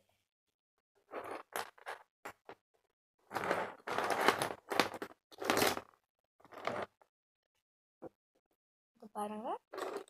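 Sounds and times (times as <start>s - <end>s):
plastic toys rustling and crackling: 1.0s - 2.6s, 3.3s - 7.1s, 9.7s - 10.0s.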